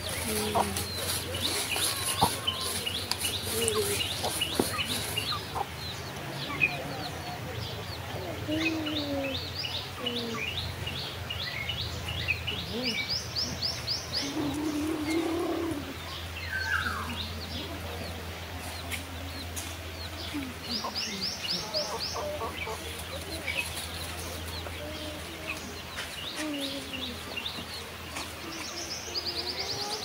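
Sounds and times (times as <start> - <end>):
chickens clucking: 0.0 - 11.4, 12.0 - 30.0
birds chirping: 0.0 - 30.0.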